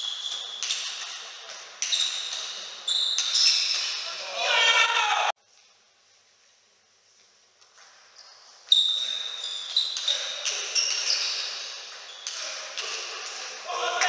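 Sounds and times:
shoes squeaking on floor: 0:00.0 - 0:04.3, 0:07.6 - 0:13.9.

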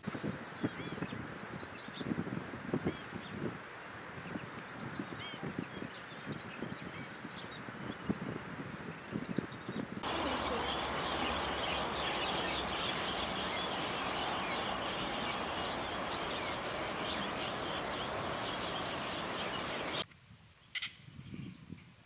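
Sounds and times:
flock of birds calling: 0:10.0 - 0:20.0.

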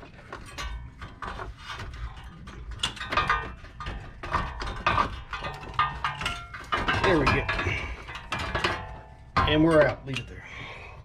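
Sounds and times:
metal scraping and knocking: 0:00.0 - 0:10.4.

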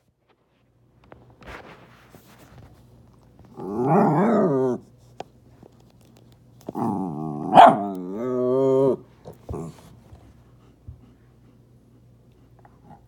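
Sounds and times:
dog growling: 0:03.5 - 0:04.8, 0:06.7 - 0:09.9.

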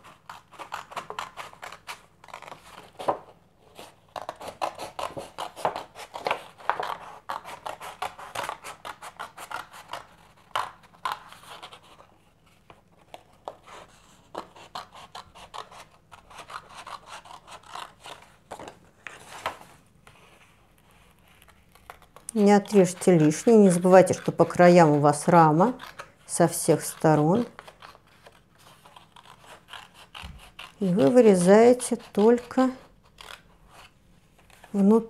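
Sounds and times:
scissors snipping thick paper: 0:00.0 - 0:03.2, 0:21.4 - 0:33.5.

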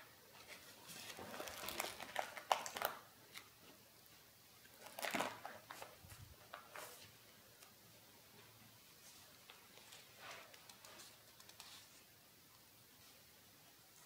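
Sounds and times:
paper pages rustling: 0:00.3 - 0:03.8, 0:04.8 - 0:07.2, 0:09.0 - 0:12.1.

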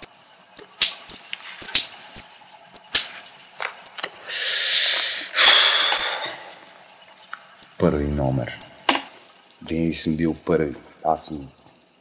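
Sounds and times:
light even ticking: 0:00.0 - 0:04.0, 0:07.6 - 0:08.8
breathy exhaling of smoke: 0:04.2 - 0:06.6.

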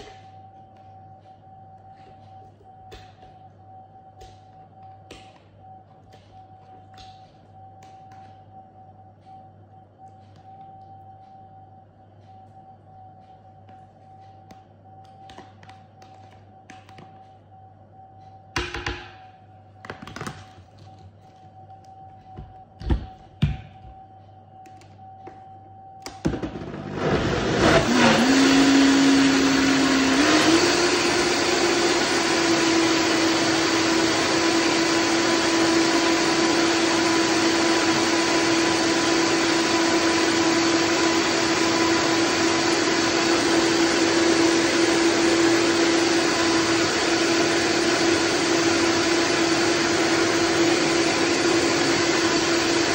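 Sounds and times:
blender motor running: 0:26.3 - 0:52.9.

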